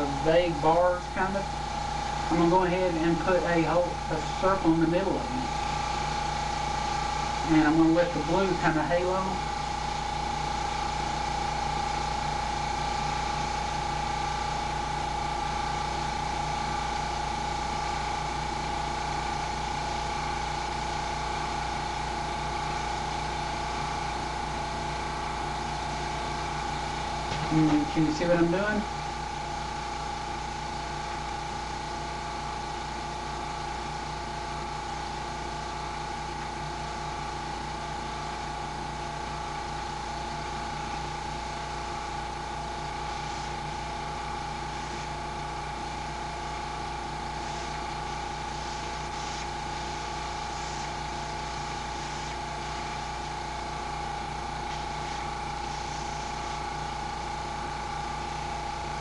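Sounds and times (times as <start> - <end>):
air compressor humming and hissing: 0.0 - 59.0.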